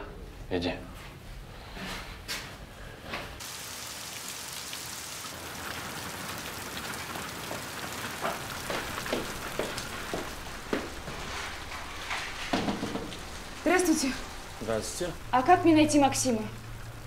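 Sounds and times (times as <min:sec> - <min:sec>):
steady rain: 0:03.4 - 0:17.0.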